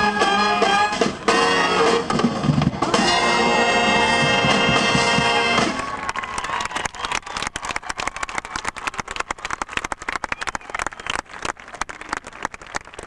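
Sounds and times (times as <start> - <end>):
audience applauding: 2.9 - 13.0.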